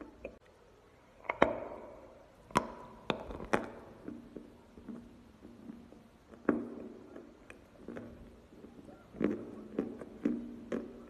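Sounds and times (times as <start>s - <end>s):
crunchy chewing: 2.5s - 11.0s.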